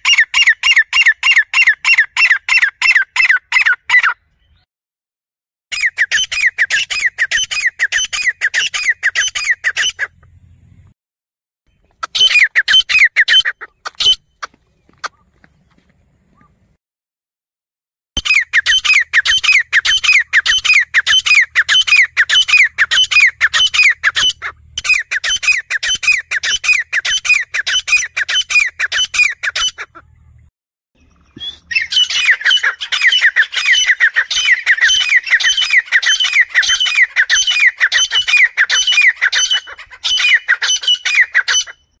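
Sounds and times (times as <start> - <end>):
francolin squawking call: 5.7 - 10.8, 11.8 - 16.6, 18.2 - 30.4, 31.0 - 42.0.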